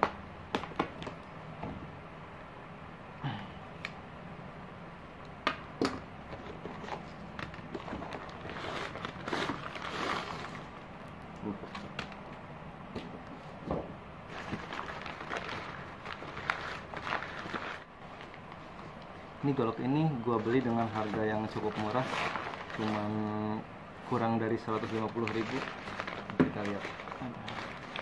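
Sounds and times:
paper and plastic rustling: 6.3s - 10.8s, 14.3s - 28.0s
packaging crinkling: 6.3s - 12.3s, 14.3s - 19.0s, 19.8s - 23.4s, 24.1s - 28.0s.

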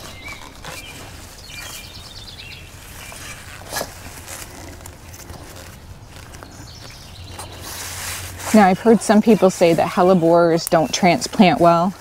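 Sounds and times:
bird chirping: 0.0s - 3.6s, 6.0s - 11.8s
shovel digging in soil: 2.8s - 11.9s.

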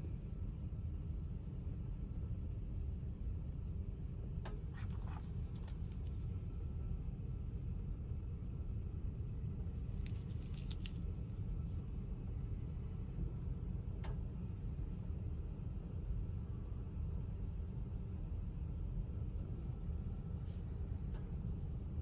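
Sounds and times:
train cabin low rumble: 0.0s - 22.0s
paper crinkling and clicks: 4.7s - 6.2s, 9.8s - 11.8s.

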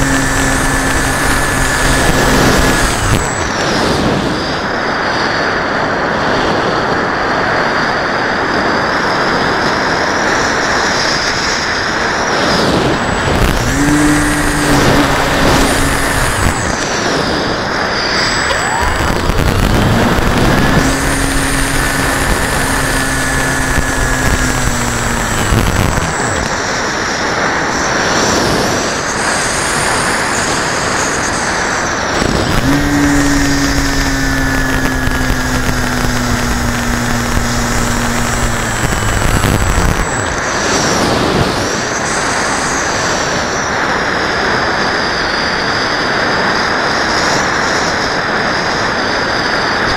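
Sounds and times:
air rushing over microphone: 0.0s - 4.6s, 12.0s - 29.6s, 30.4s - 43.4s
motor and propeller humming: 0.0s - 49.9s.

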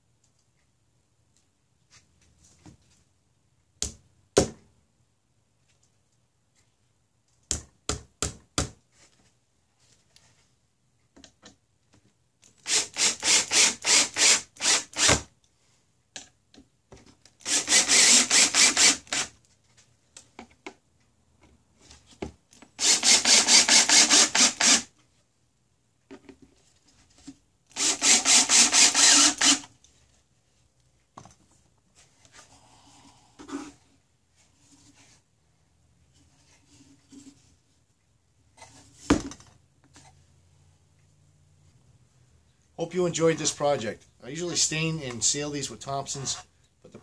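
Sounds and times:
cordless drill driving screws: 12.6s - 15.3s, 17.4s - 19.3s, 22.8s - 24.9s, 27.7s - 29.7s.

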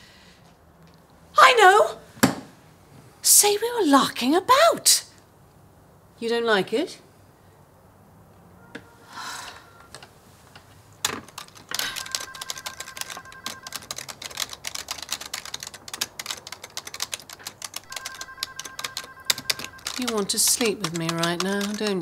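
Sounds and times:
fast typing on keyboard: 11.1s - 22.0s.

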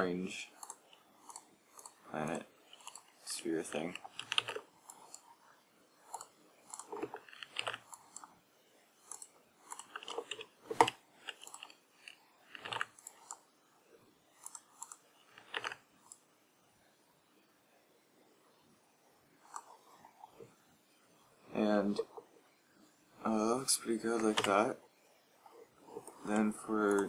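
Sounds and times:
keyboard and mouse clicks: 0.6s - 2.0s, 2.7s - 3.1s, 3.8s - 5.2s, 6.1s - 8.3s, 9.1s - 13.4s, 14.4s - 15.8s, 19.5s - 19.7s, 24.1s - 24.6s, 26.0s - 27.0s.

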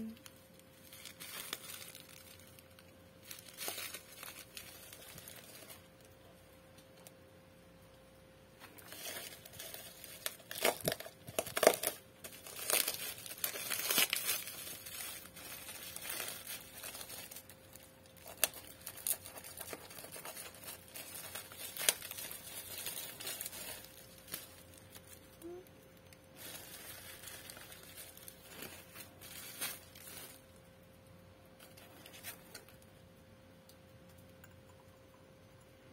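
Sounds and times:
bubble wrap crinkling: 0.0s - 7.2s, 8.6s - 33.1s
faint steady hum: 0.0s - 35.9s.

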